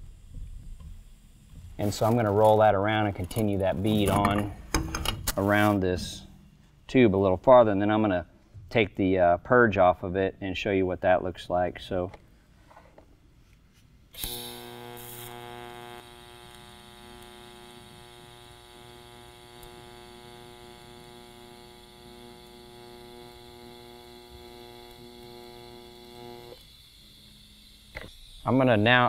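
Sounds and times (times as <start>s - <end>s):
welding arc hiss: 0.0s - 6.3s, 14.1s - 29.0s
welding arc humming: 0.0s - 6.4s, 14.1s - 29.0s.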